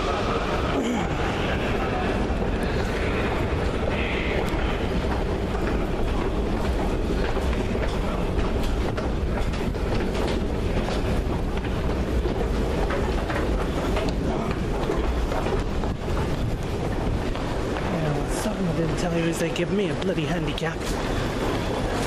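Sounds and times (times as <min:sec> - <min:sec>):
escalator rumbling: 0:00.0 - 0:22.0
clicks and clatter of moving steps: 0:04.4 - 0:22.0.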